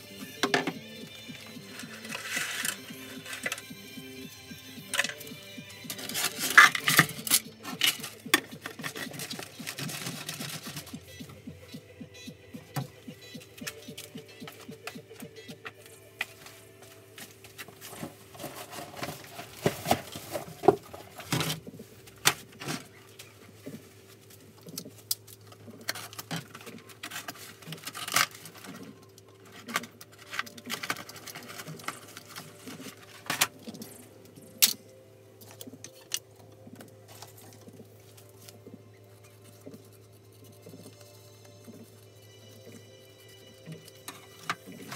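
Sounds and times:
hands handling small things: 0:05.9 - 0:11.0.

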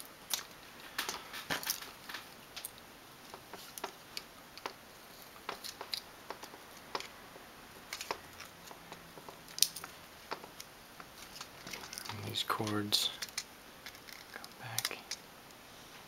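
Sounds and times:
small plastic and metal clicks: 0:11.4 - 0:15.2.

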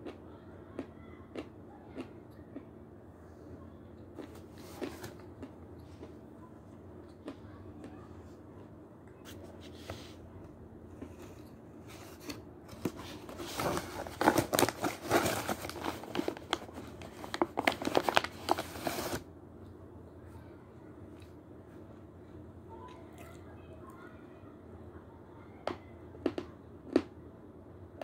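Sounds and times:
paper bag crinkling and rustling: 0:12.2 - 0:19.2.

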